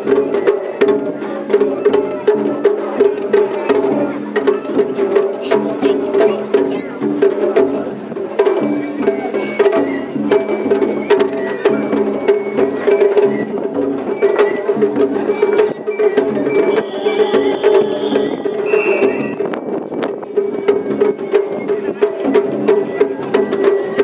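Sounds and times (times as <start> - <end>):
drums and percussion: 0.0 - 24.0
high melody of held notes: 15.4 - 20.0.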